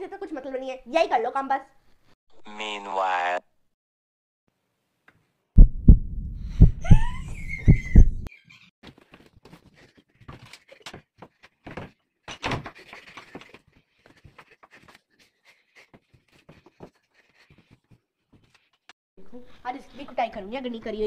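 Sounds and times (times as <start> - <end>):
things being moved around: 8.3 - 15.0.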